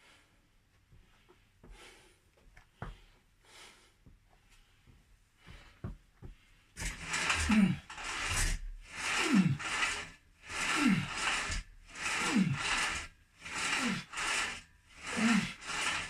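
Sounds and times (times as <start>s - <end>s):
soft breathing: 0.0s - 8.3s.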